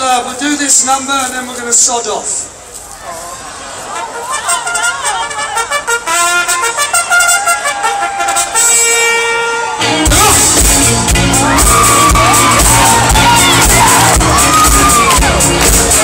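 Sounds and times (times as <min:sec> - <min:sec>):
horn line: 0:03.9 - 0:16.0
drums: 0:09.7 - 0:16.0
bass: 0:09.8 - 0:16.0.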